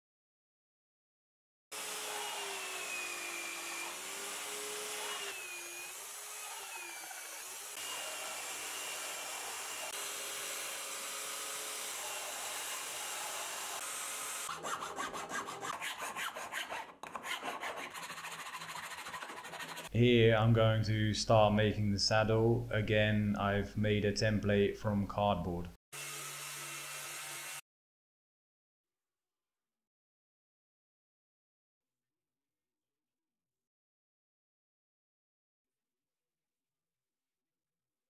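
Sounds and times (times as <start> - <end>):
belt sander sanding wood: 1.8 - 19.9
file rasping on wood: 1.8 - 19.9.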